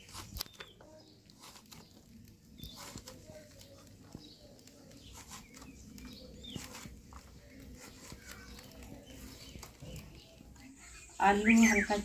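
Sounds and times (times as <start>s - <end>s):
crisp cuts on a blade: 0.0s - 2.0s, 4.6s - 9.8s
birds chirping faintly: 0.0s - 12.0s.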